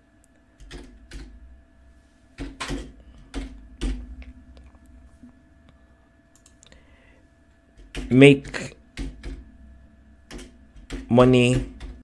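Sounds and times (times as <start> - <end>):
keyboard keystrokes: 0.6 - 1.3, 2.4 - 4.0, 10.3 - 12.0.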